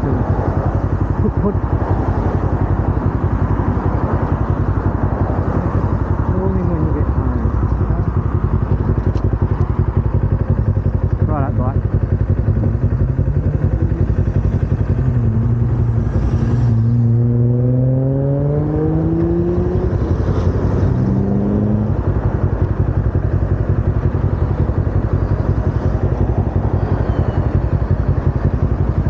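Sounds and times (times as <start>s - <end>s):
motorcycle engine idling: 0.0s - 17.2s, 18.7s - 29.0s
vehicle engine accelerating past: 14.8s - 21.9s.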